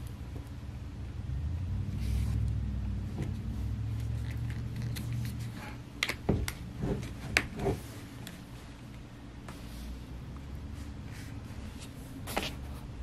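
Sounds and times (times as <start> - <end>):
laptop handling rumble: 1.3 - 9.0.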